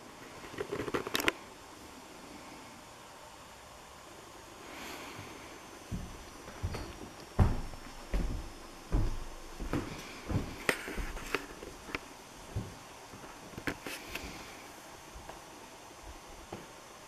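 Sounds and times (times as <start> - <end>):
footsteps: 5.9 - 14.4.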